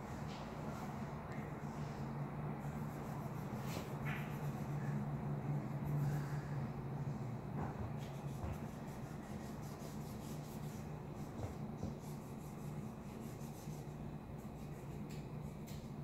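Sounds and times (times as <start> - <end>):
low steady hum: 0.0 - 16.0
marker scribbling on paper: 8.0 - 15.6.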